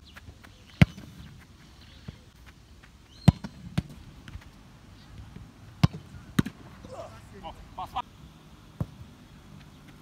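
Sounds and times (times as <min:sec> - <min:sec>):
football kicked with thud: 0:05.8 - 0:06.6.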